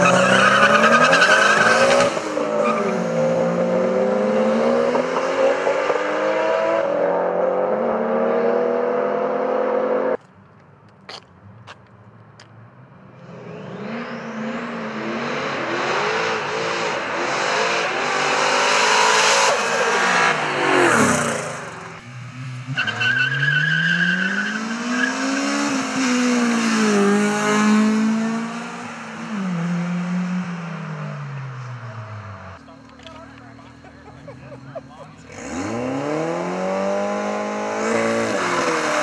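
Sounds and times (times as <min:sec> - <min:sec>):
racing car engines passing: 0:12.8 - 0:39.0.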